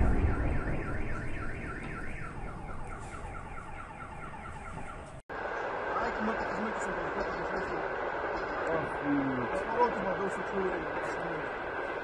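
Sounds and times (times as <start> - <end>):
explosion rumble: 0.0 - 3.7
car alarm warbling: 0.0 - 5.2.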